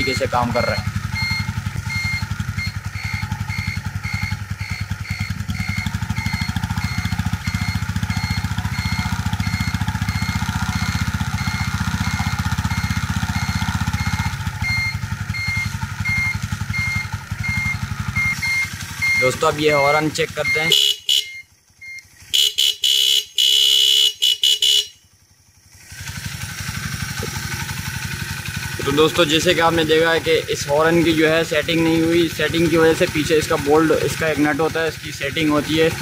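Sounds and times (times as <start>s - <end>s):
turn-signal buzzer beeping: 0.0s - 24.9s
motorcycle engine idling: 0.0s - 36.0s.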